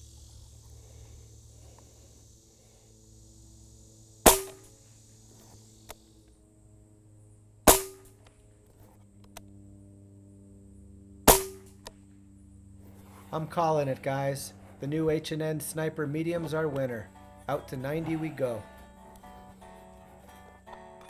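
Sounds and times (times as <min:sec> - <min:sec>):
air rifle shots cracking: 0:04.2 - 0:04.8, 0:07.7 - 0:08.2, 0:11.2 - 0:12.0.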